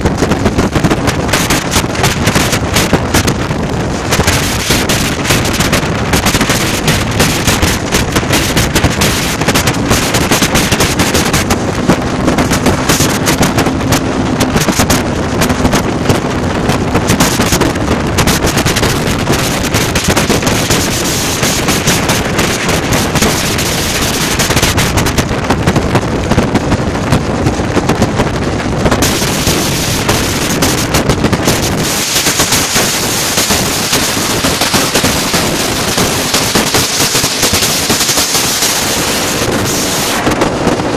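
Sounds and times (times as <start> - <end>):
motorcycles running: 0.0 - 40.9
wind buffeting on microphone: 0.0 - 40.9.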